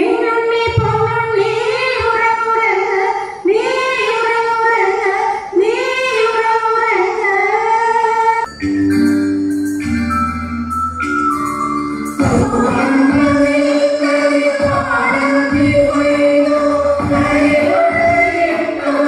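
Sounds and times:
women singing in unison: 0:12.2 - 0:19.0.

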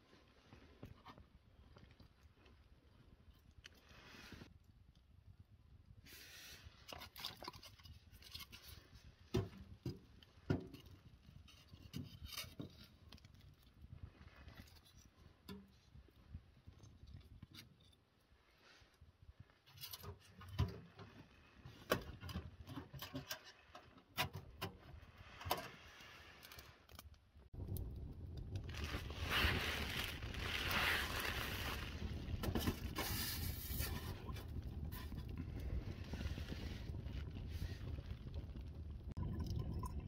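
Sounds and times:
stick scraping in stove firebox: 0:06.1 - 0:13.8, 0:19.6 - 0:27.2, 0:30.2 - 0:38.2.

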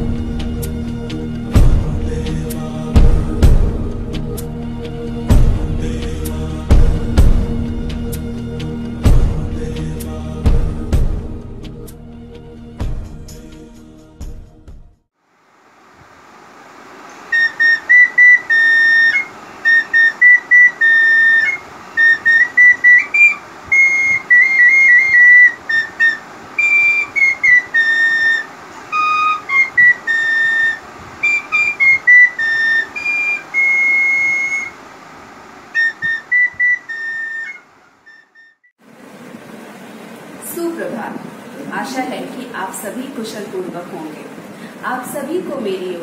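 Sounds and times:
steady hiss: 0:00.0 - 0:11.9, 0:15.2 - 0:38.2, 0:38.8 - 0:46.0
small wind instrument melody: 0:17.3 - 0:34.9, 0:35.7 - 0:38.7.

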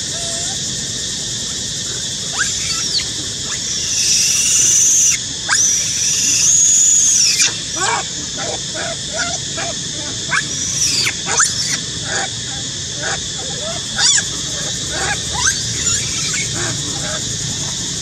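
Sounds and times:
monkey screaming: 0:00.0 - 0:00.7, 0:02.3 - 0:18.0
squeaky monkey calls: 0:02.3 - 0:12.4, 0:13.0 - 0:17.8.

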